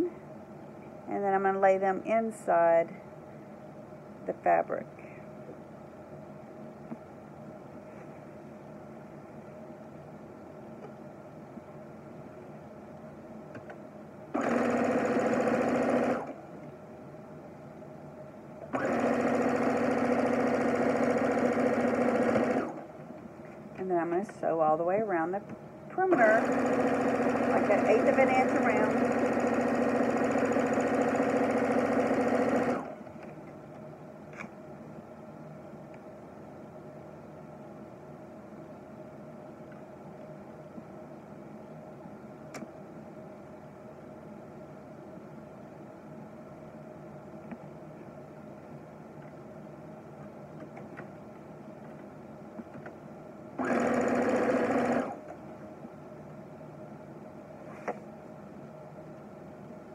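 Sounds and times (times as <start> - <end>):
low room hum: 0.0 - 59.9
sewing machine stitching: 14.4 - 16.4, 18.7 - 22.9, 26.0 - 33.0, 53.6 - 55.4.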